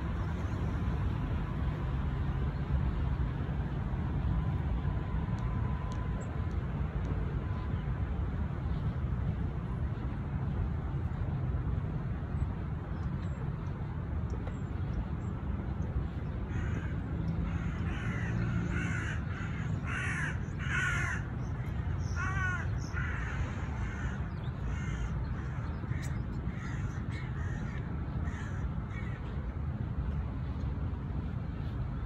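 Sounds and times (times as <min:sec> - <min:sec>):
low background rumble: 0:00.0 - 0:32.0
crows cawing: 0:16.5 - 0:16.9, 0:17.5 - 0:21.3, 0:22.0 - 0:29.2.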